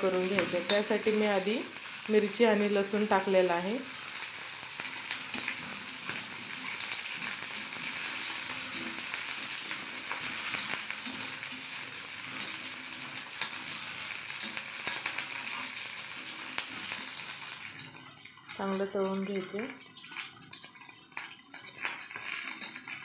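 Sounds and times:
chillies sizzling in hot oil: 0:00.0 - 0:23.0.

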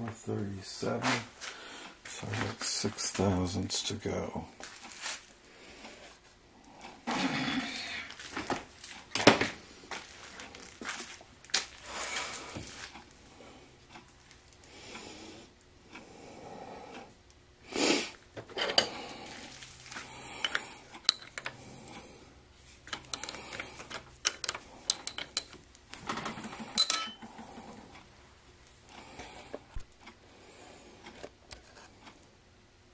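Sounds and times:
metal chips scraping and clinking: 0:22.9 - 0:25.6.

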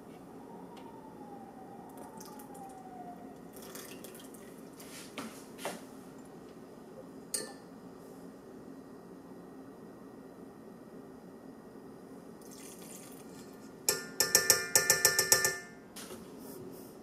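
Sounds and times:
liquid pouring into metal bowl: 0:03.5 - 0:04.8, 0:12.4 - 0:13.5
faint wavering tone: 0:07.3 - 0:07.8.

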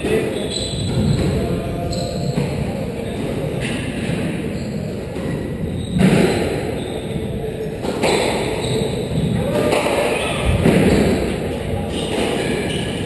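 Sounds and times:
squash ball hitting court walls: 0:00.0 - 0:06.9, 0:07.8 - 0:13.0
squash ball struck with rackets: 0:05.2 - 0:06.7, 0:09.6 - 0:11.4.

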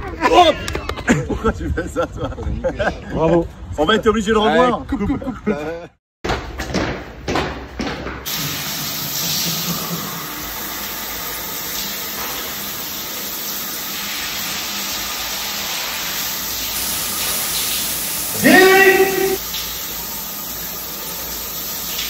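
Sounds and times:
showers spraying on tiled floor: 0:08.2 - 0:22.0.

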